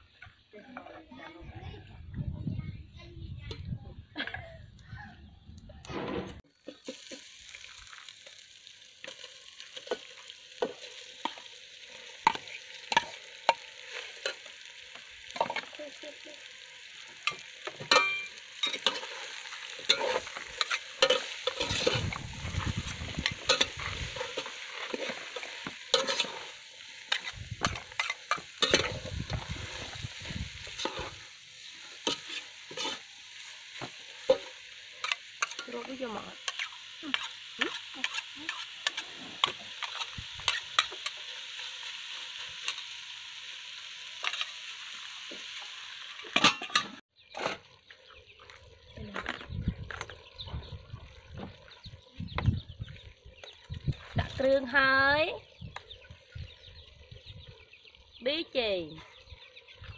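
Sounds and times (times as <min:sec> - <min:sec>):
meat and vegetables sizzling in pot: 0:06.4 - 0:59.9
spatula scraping and clinking on pot: 0:17.3 - 0:22.2, 0:23.2 - 0:29.1, 0:32.0 - 0:33.1.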